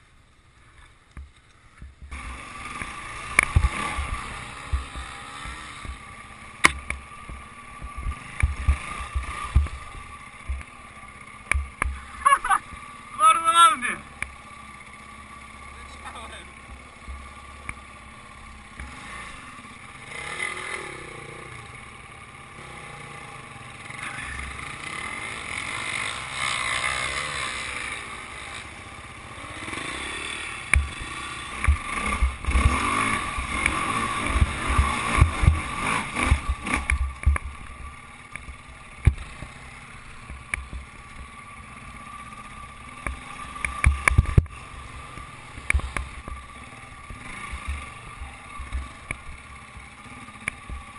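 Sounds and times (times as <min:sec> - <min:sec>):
thumps and knocks from rough ground: 0:01.1 - 0:02.2, 0:02.8 - 0:06.0, 0:06.6 - 0:09.9, 0:30.7 - 0:32.8, 0:33.4 - 0:37.8, 0:38.4 - 0:39.5, 0:43.1 - 0:44.6
dirt bike engine revving: 0:02.0 - 0:50.9.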